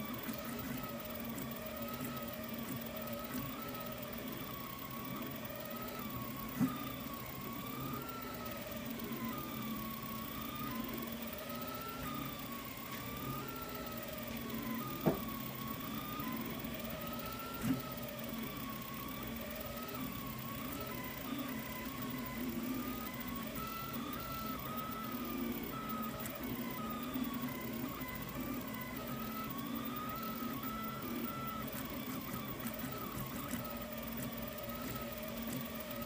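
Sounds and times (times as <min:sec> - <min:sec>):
printer hum: 0:00.0 - 0:36.0
stepper motors whining: 0:00.0 - 0:36.0.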